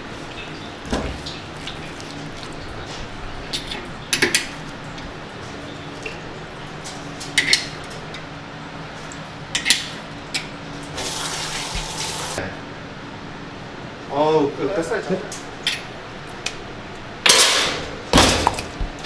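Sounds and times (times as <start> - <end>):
room machinery hum: 0.0 - 19.0
running water: 10.9 - 12.4.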